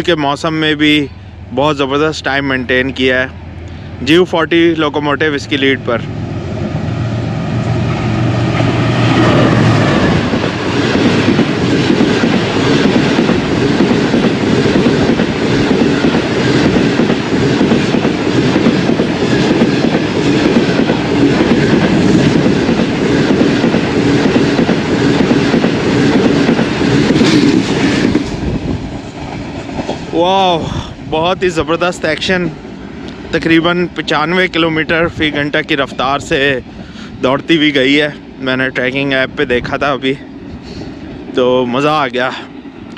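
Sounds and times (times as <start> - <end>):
diesel locomotive hum: 0.0 - 42.9
train wheels clattering on rails: 7.6 - 30.2.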